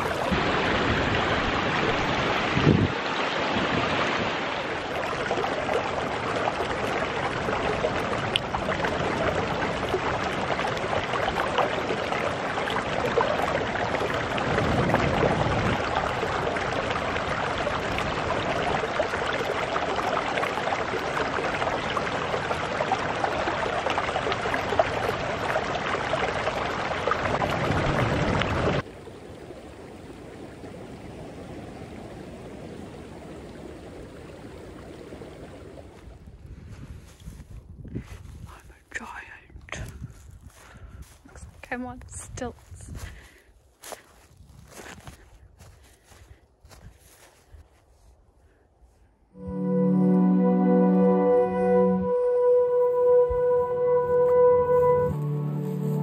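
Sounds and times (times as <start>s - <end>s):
stream water splashing over rocks: 0.0s - 36.4s.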